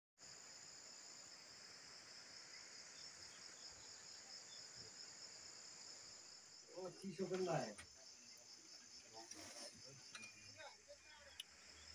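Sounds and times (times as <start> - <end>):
insects droning: 0.2 - 11.9.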